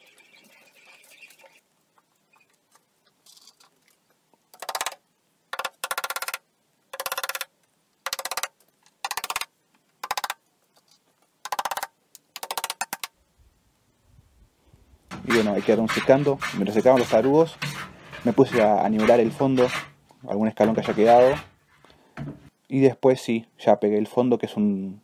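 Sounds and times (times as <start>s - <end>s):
small hammer tapping wooden dowels: 4.5s - 10.4s, 11.4s - 13.1s.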